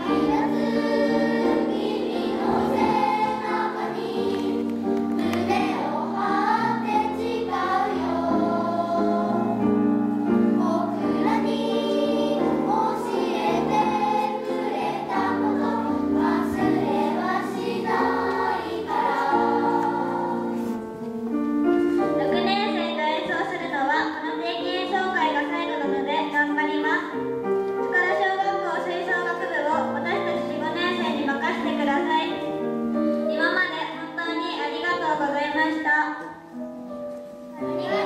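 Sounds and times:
children's choir singing: 0.0s - 20.9s, 37.5s - 38.0s.

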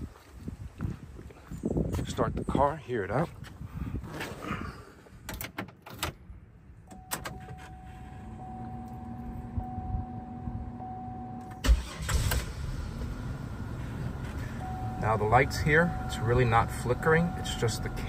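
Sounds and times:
ignition key clicks: 6.8s - 7.8s, 8.5s - 10.0s
car engine cranking and starting: 6.9s - 18.0s
car engine idling: 7.7s - 18.0s.

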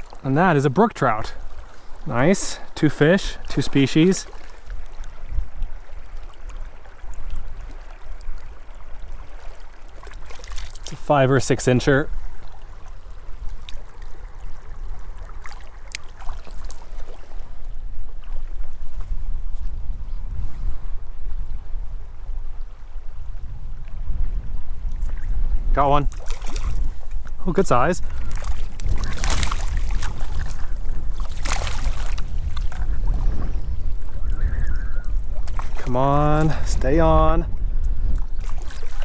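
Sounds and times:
shallow stream rushing: 0.0s - 19.5s, 25.9s - 36.9s, 38.2s - 39.0s
light water splashes: 0.0s - 19.7s, 24.9s - 33.3s, 35.1s - 36.8s, 38.1s - 39.0s
wind buffeting microphone: 0.0s - 39.0s.

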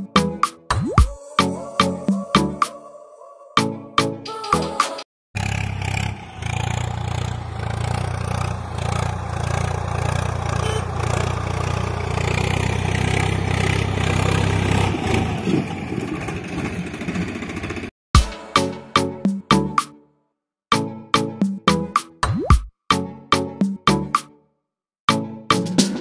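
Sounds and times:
tractor engine running: 5.4s - 17.9s.

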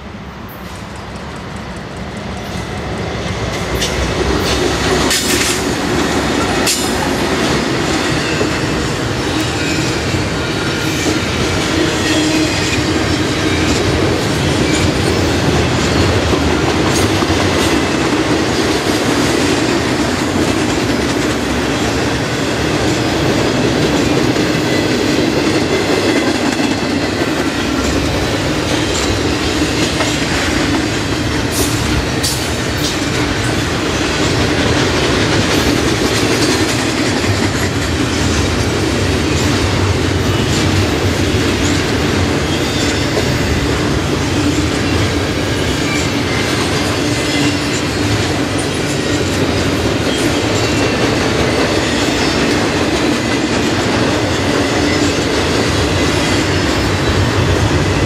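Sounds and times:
steel wheels rumbling on rail: 0.0s - 58.0s
sharp clicks from wheels and couplings: 0.5s - 11.7s, 23.8s - 38.8s.

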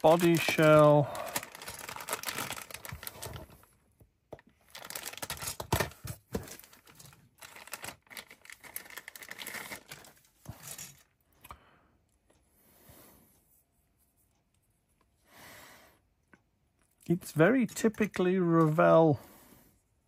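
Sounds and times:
plastic bag crinkling: 0.0s - 3.8s, 4.6s - 11.0s.

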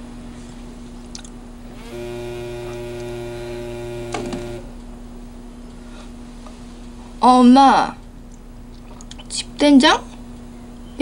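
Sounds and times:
faint low hum: 0.0s - 11.0s
mobile phone vibrating: 1.7s - 4.8s.

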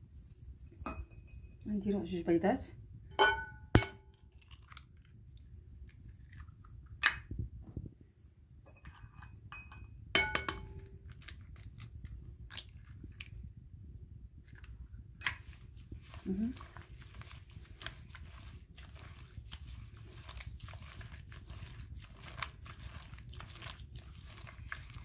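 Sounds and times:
glass ringing: 3.1s - 4.0s, 9.5s - 10.7s
eggshell crunching: 4.3s - 7.1s.

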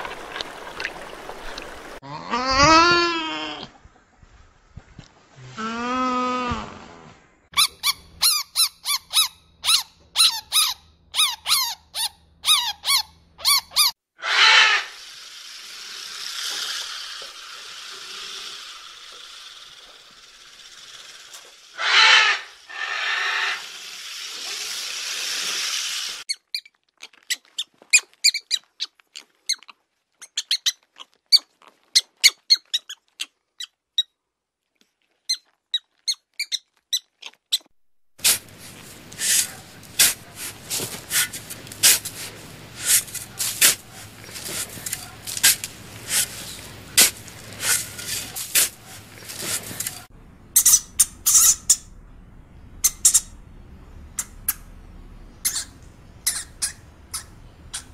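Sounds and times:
chinchilla squeaking: 7.6s - 14.8s, 26.3s - 34.1s, 55.4s - 57.9s
porcupine hissing and rasping: 14.4s - 26.3s, 38.2s - 50.1s
mole rat chirps and clicks: 26.3s - 34.1s, 35.3s - 37.7s, 54.2s - 54.7s, 55.4s - 57.9s.

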